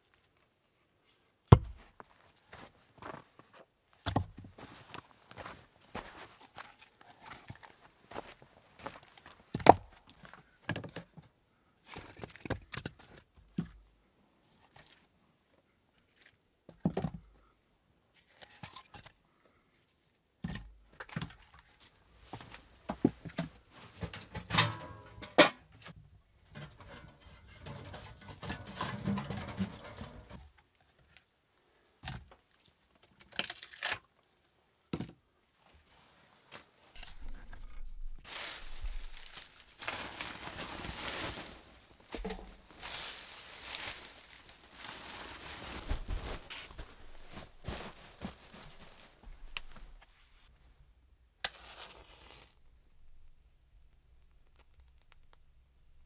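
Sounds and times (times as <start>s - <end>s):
objects knocking and clattering: 23.0s - 25.7s, 26.5s - 30.4s, 42.1s - 42.9s
rustling: 35.8s - 50.6s.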